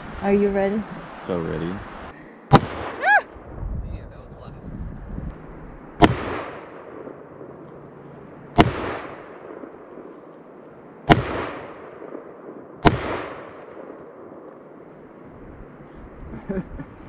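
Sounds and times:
rifle shots with echo: 0:02.5 - 0:03.0, 0:06.0 - 0:07.6, 0:08.5 - 0:10.3, 0:11.0 - 0:14.8.

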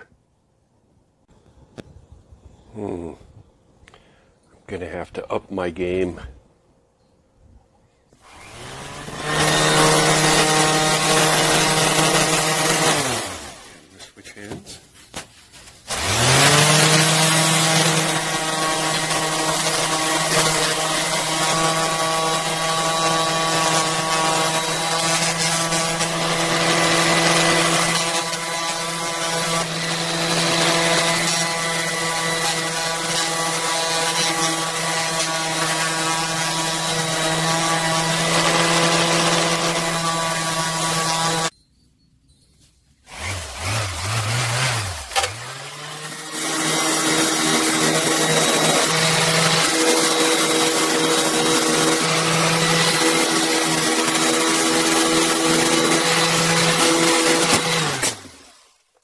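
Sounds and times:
orbital sander grinding: 0:08.2 - 0:14.0, 0:15.8 - 0:41.6, 0:43.1 - 0:58.6.

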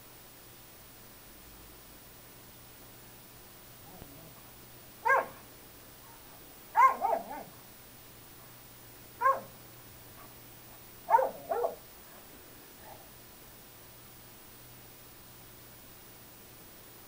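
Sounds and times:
dog barking: 0:05.0 - 0:05.4, 0:06.0 - 0:07.6, 0:09.2 - 0:09.6, 0:11.1 - 0:11.8.

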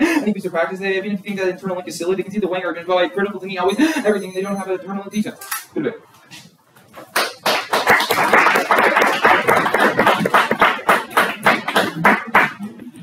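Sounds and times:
people clapping: 0:07.0 - 0:13.0.

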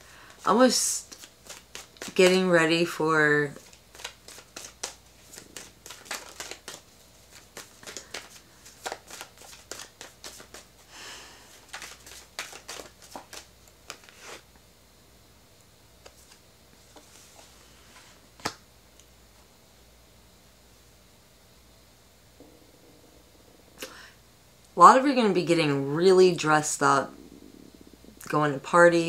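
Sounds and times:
cards being shuffled: 0:01.0 - 0:02.4, 0:03.5 - 0:10.7, 0:11.5 - 0:14.4.

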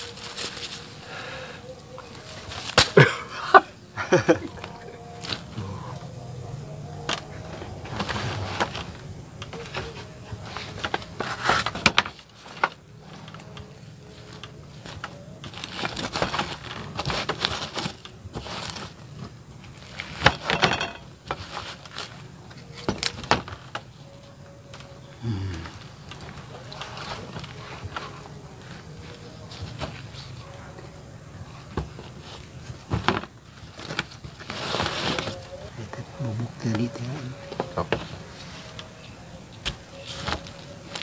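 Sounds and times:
dry bracts crackling as peeled: 0:00.0 - 0:03.3, 0:04.2 - 0:06.0, 0:07.0 - 0:20.5.

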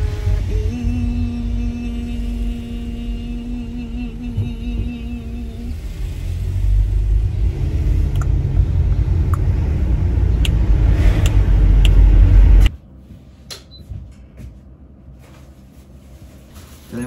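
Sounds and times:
car cabin road rumble: 0:00.0 - 0:13.3.

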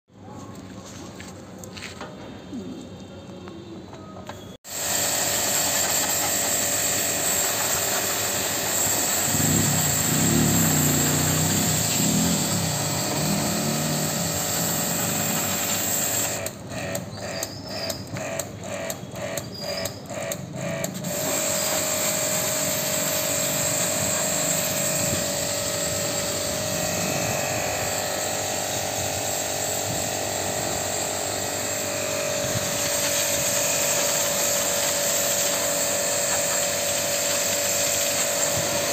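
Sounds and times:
pressure washer motor whine: 0:04.6 - 0:38.9
water spraying: 0:04.7 - 0:16.4, 0:21.0 - 0:31.6, 0:32.2 - 0:38.9.

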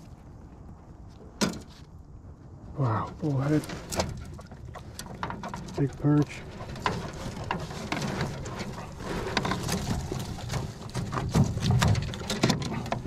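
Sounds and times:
fish rustling in landing net: 0:03.6 - 0:13.0.

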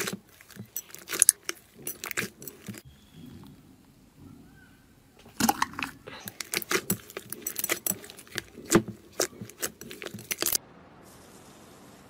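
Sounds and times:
slime squeezed sticky pops: 0:05.4 - 0:10.6.

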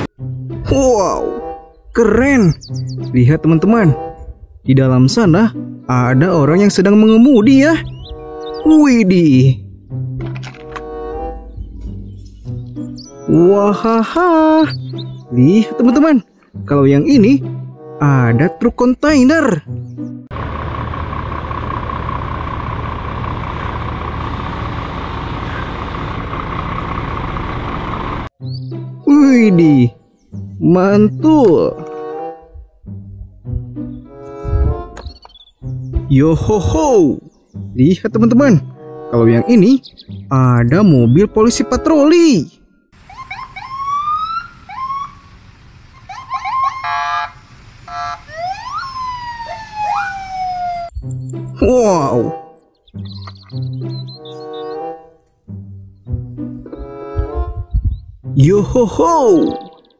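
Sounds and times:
truck diesel engine driving by: 0:20.3 - 0:28.4
police siren whooping and wailing: 0:43.0 - 0:51.0.

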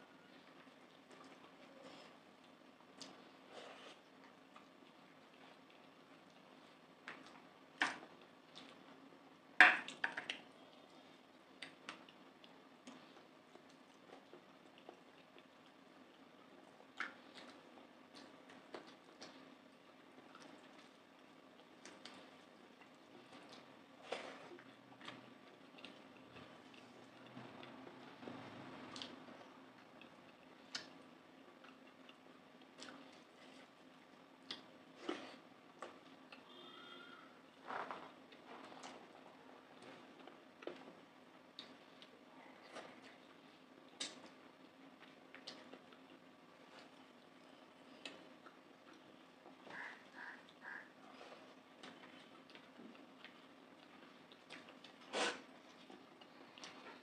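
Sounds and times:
sharp clicks of eating by hand: 0:02.4 - 0:03.2, 0:11.5 - 0:19.5, 0:24.6 - 0:33.3, 0:34.4 - 0:35.2, 0:41.5 - 0:43.2, 0:43.8 - 0:47.0, 0:51.8 - 0:57.0.

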